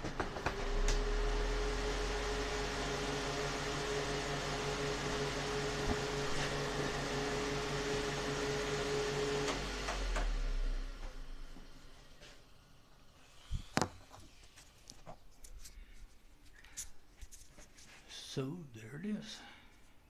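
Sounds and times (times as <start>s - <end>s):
fan motor hum: 0.0s - 14.9s
fan whine: 0.0s - 19.6s.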